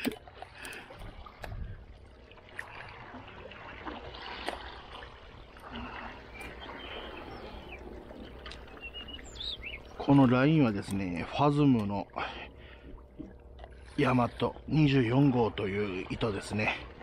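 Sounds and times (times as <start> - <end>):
water washing over rocks: 0.0 - 1.6.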